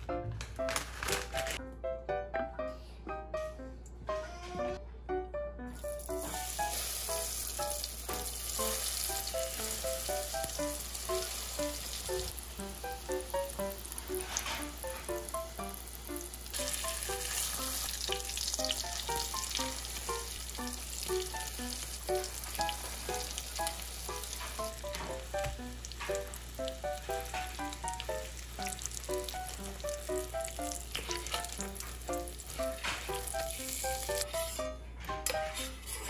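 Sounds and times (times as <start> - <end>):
light melody: 0.0 - 36.0
frying in oil sizzling: 5.8 - 34.6.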